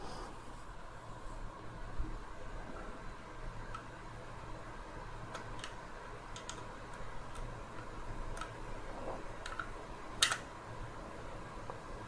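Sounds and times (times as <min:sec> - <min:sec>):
plastic parts clicking: 0:05.3 - 0:08.6, 0:09.4 - 0:10.5.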